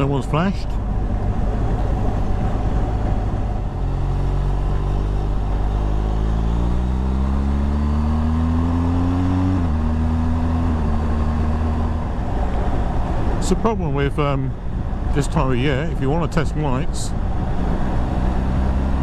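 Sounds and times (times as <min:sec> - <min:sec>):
motorcycle engine accelerating: 0:01.4 - 0:13.2, 0:17.4 - 0:19.0.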